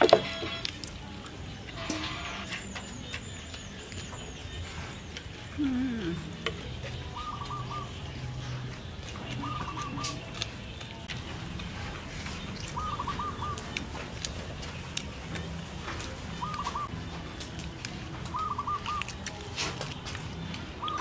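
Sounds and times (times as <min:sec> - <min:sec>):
bird calling: 0:01.8 - 0:11.0, 0:12.6 - 0:13.9, 0:16.3 - 0:17.0, 0:18.3 - 0:19.3, 0:20.8 - 0:21.0.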